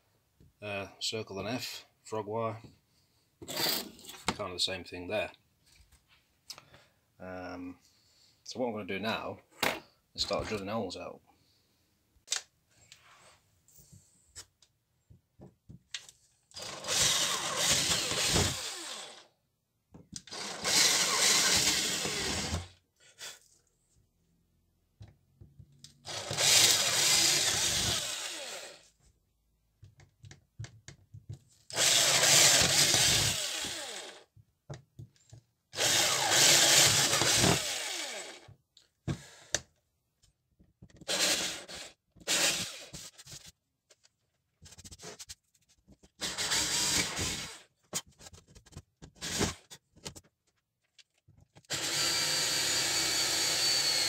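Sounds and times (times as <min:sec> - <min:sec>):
power drill drilling wood: 0:16.6 - 0:19.3, 0:20.3 - 0:22.8, 0:26.0 - 0:28.9, 0:31.7 - 0:34.2, 0:35.8 - 0:38.5, 0:41.1 - 0:43.1, 0:46.2 - 0:47.6, 0:49.2 - 0:49.6, 0:51.7 - 0:54.0.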